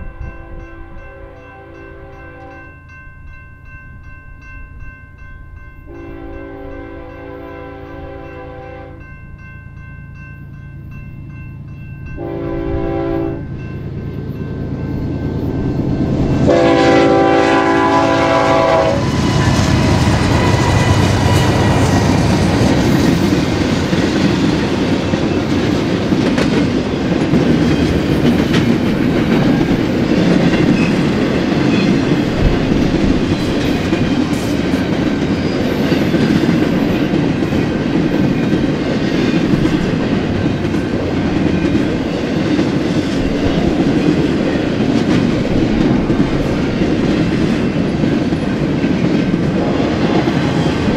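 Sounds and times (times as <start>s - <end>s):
freight train rolling past: 0.0s - 50.9s
train air horn: 5.9s - 9.0s, 12.2s - 13.5s, 16.4s - 21.4s.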